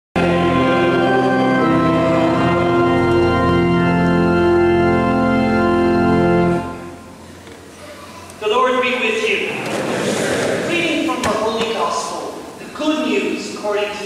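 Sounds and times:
church organ sustained chords: 0:00.2 - 0:07.4.

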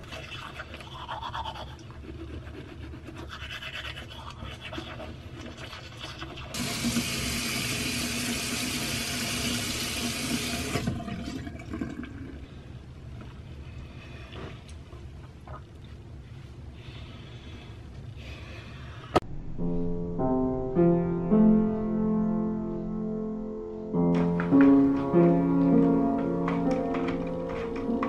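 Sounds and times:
toothbrush scrubbing teeth: 0:00.0 - 0:07.4.

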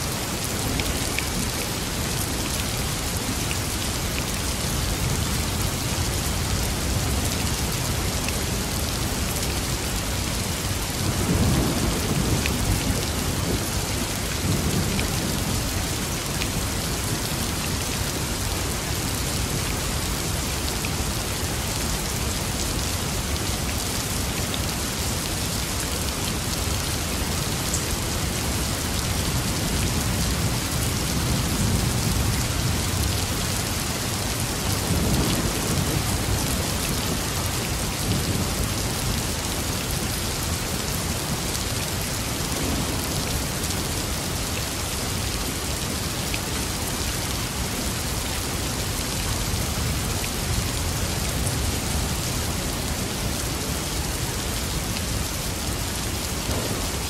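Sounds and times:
steady rain falling: 0:00.0 - 0:57.0
low rolls of thunder: 0:56.4 - 0:57.0.

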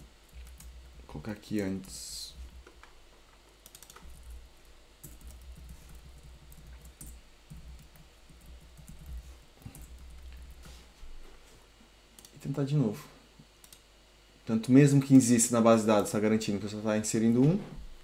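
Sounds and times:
typing on computer keyboard: 0:03.6 - 0:04.4, 0:05.0 - 0:10.4.

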